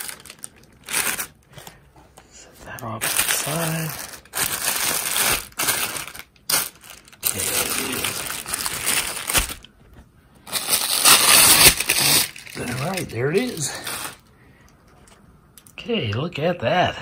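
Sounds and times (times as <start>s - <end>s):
plastic wrapping crinkling: 0.0s - 1.8s, 2.6s - 14.3s.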